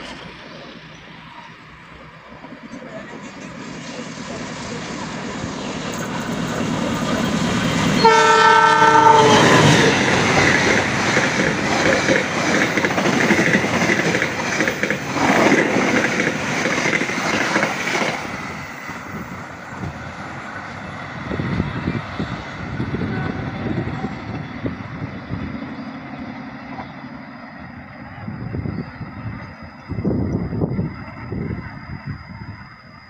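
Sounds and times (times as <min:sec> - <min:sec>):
low train rumble: 0:00.0 - 0:33.0
train wheels on rails: 0:00.0 - 0:33.0
wind buffeting microphone: 0:08.8 - 0:26.8, 0:27.6 - 0:33.0.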